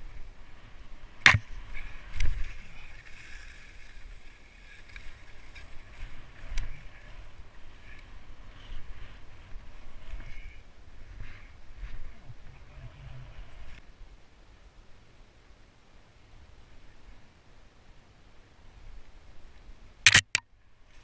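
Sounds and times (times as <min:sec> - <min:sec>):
skis hissing through snow: 0:00.0 - 0:10.5.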